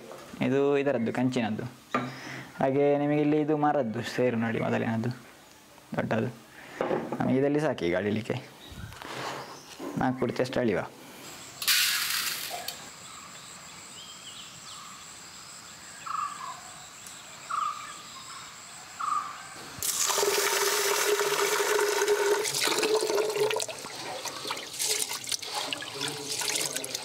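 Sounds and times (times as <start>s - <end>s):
water pouring into metal pot: 19.8s - 27.0s
hands swishing rice in water: 23.9s - 27.0s.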